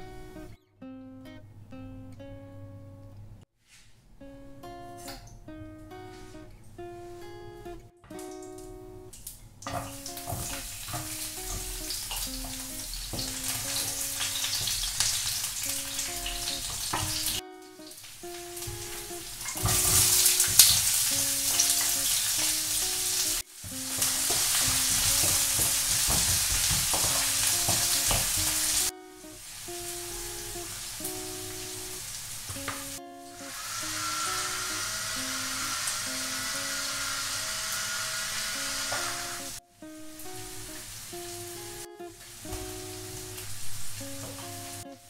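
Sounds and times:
light background music: 9.7s - 32.0s
oil sizzling in a frying pan: 9.7s - 39.6s, 40.2s - 44.8s.

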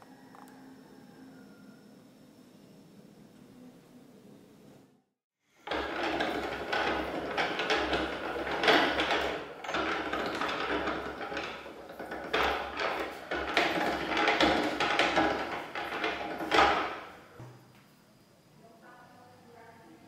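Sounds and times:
rolling mill gears grinding: 5.6s - 17.3s.

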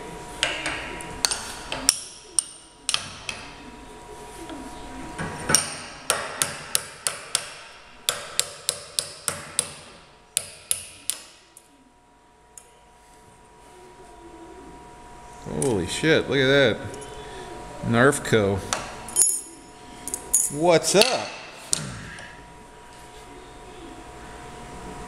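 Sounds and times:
hammer tapping on metal: 5.5s - 9.8s.

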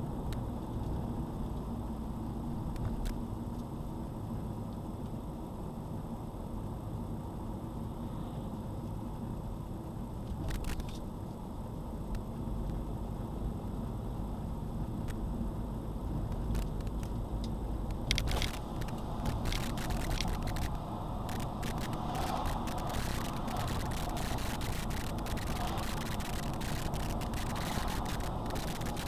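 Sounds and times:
road and engine rumble inside car: 0.0s - 29.0s
sharp clicks and rattles: 16.3s - 29.0s.

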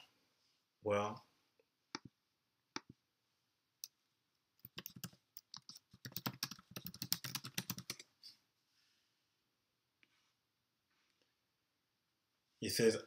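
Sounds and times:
computer keyboard typing: 4.6s - 8.0s.

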